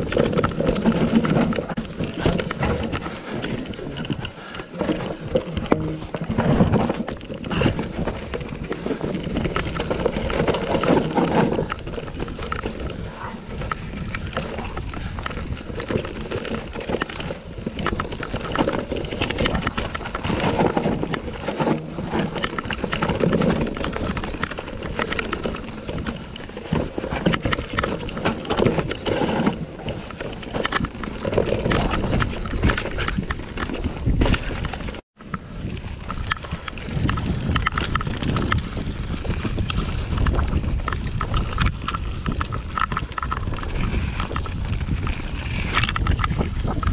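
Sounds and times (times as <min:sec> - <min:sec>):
bike clattering and rattling: 0:00.0 - 0:46.9
tyres rolling and skidding on dirt: 0:00.0 - 0:46.9
wind noise on microphone: 0:00.0 - 0:46.9.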